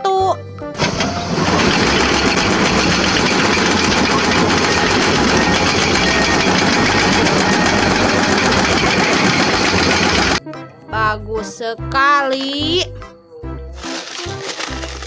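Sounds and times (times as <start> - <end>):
diesel engines running: 0.8 - 10.4
hydraulic rock breaker hammering: 0.8 - 10.4.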